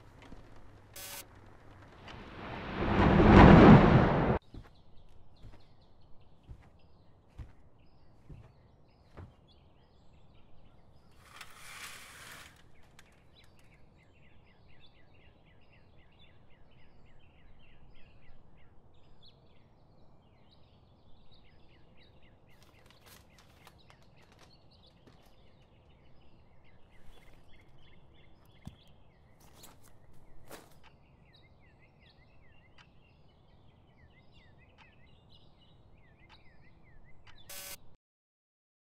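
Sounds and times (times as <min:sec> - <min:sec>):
burst of noise: 0:00.9 - 0:04.4
faint birds chirping: 0:04.4 - 0:37.8.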